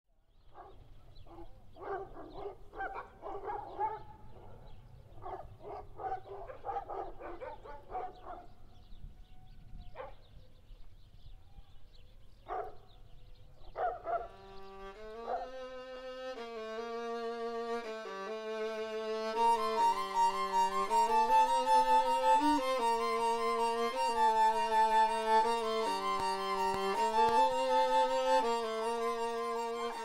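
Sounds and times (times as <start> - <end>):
dog barking and yelping: 1.3 - 8.5, 12.5 - 12.8, 13.8 - 14.3, 15.3 - 15.5
violin music: 14.3 - 30.0.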